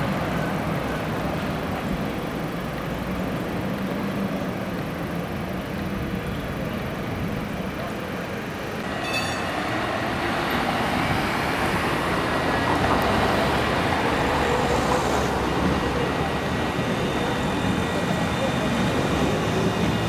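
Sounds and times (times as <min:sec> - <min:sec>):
street traffic: 0:00.0 - 0:20.0
tram running on track: 0:00.0 - 0:20.0
high ring: 0:08.9 - 0:09.8.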